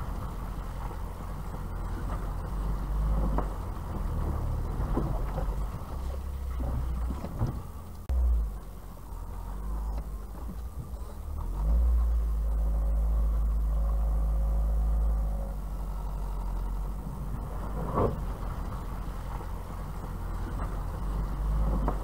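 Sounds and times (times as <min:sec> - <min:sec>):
suspension knocks over bumps: 0:00.0 - 0:08.2, 0:16.4 - 0:22.0
engine and road rumble: 0:00.0 - 0:22.0.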